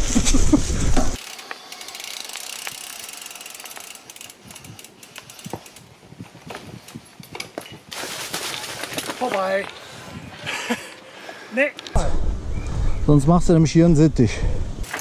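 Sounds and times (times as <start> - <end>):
bike riding rumble: 0.0 - 13.1
bicycle freewheel ratcheting: 1.2 - 6.0
chain and tyres clicking on rocks: 1.2 - 10.0.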